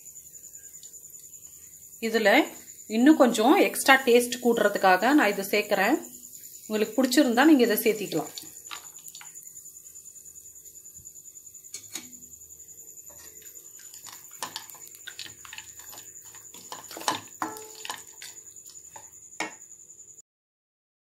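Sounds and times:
spatula knocking pan: 13.0 - 19.6
spatula scraping pan: 13.0 - 19.6.

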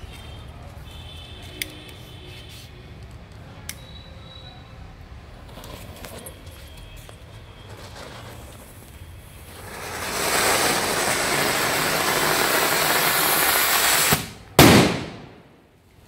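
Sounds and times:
firework fountain hissing: 7.2 - 15.5
loud firework bang: 9.6 - 15.6.

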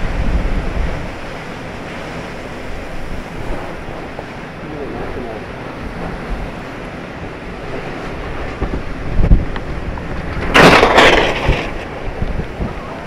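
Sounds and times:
strong wind buffeting: 0.0 - 13.0
debris crashing onto road: 10.3 - 12.2.

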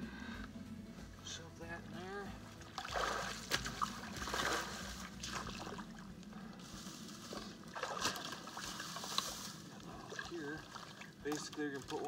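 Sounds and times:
shallow water splashing: 2.4 - 12.0.

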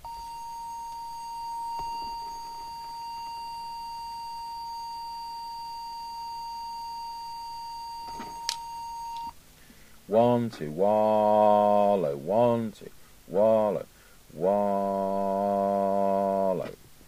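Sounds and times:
steady test tone: 0.0 - 9.3.

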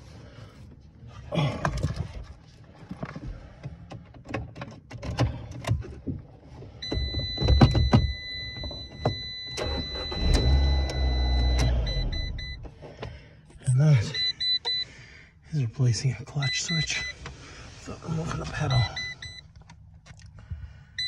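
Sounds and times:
clicks and knocks at clutch pedal: 2.8 - 9.3
low steady rumble: 5.3 - 21.0
high electronic beep: 6.8 - 12.6.

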